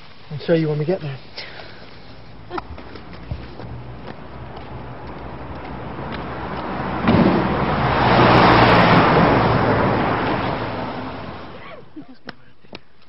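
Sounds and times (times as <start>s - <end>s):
vehicle passing close by: 2.2s - 11.7s.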